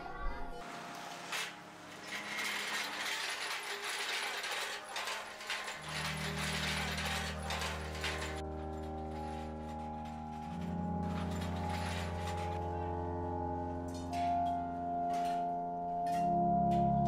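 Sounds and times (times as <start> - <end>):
low steady music tones: 0.0 - 17.0
metal hand cart rattling: 1.1 - 12.6.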